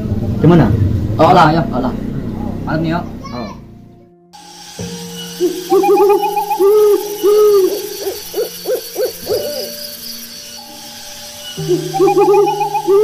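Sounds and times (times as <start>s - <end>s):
owl hooting: 5.2s - 13.0s.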